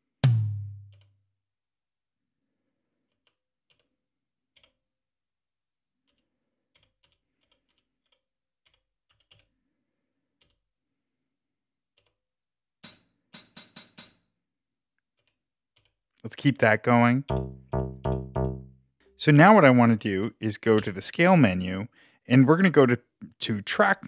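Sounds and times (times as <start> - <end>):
loud drum hits: 0.2 - 0.9.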